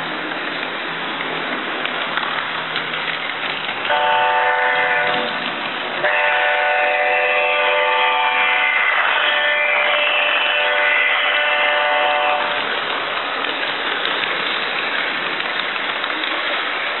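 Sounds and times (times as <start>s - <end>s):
model train rolling on track: 0.0s - 17.0s
model train horn blasts: 3.9s - 5.3s, 6.0s - 12.6s.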